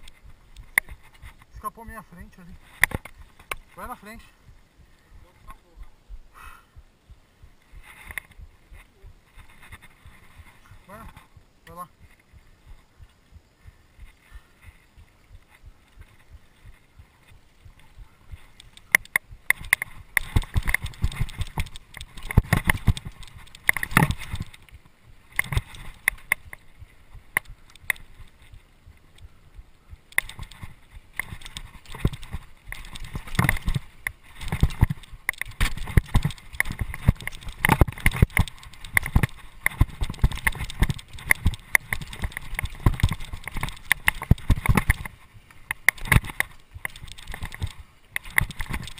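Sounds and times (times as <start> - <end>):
bike rattling on rough trail: 0.0 - 5.8, 7.0 - 48.9.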